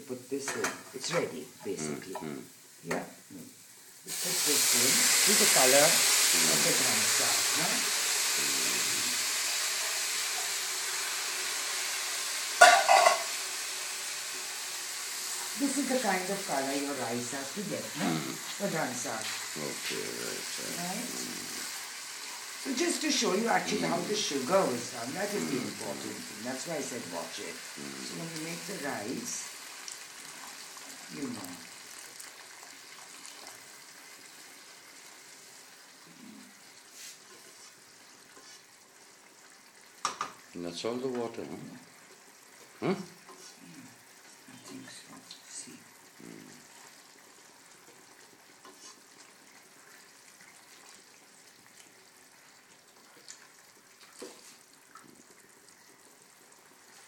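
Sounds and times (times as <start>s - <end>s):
rice sizzling in pan: 0.0s - 57.0s
metal utensil clattering on pan: 0.4s - 1.0s, 12.6s - 13.3s
steam hiss: 3.9s - 29.4s.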